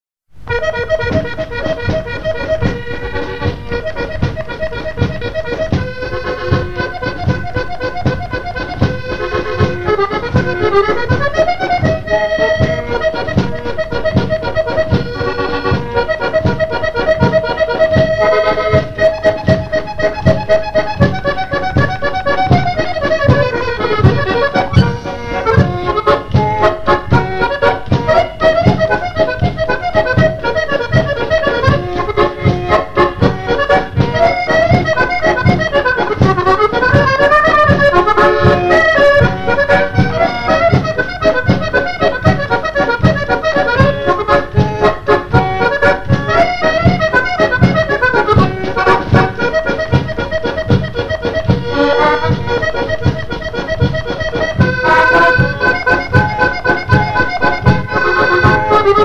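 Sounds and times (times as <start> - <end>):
accordion playing waltz: 0.4 - 59.0
drum kit waltz beat: 0.4 - 59.0.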